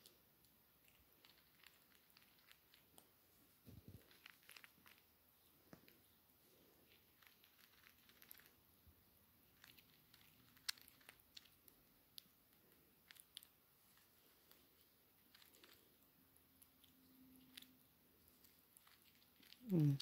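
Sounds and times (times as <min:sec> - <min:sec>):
squirrel chewing: 0:00.0 - 0:20.0.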